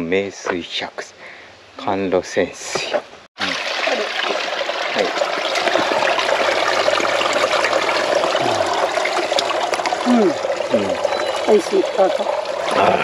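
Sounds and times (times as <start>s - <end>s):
spring water running and splashing: 3.4s - 13.0s.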